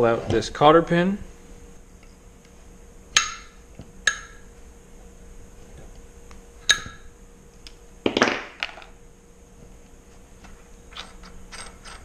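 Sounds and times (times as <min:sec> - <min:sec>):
tools clattering on workbench: 0:08.1 - 0:08.9.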